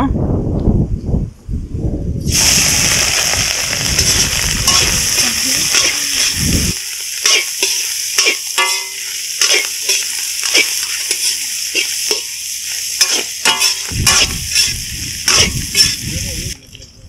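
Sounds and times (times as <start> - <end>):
meat sizzling in hot oil: 2.2 - 16.6
metal ladle scraping a wok: 3.9 - 16.1.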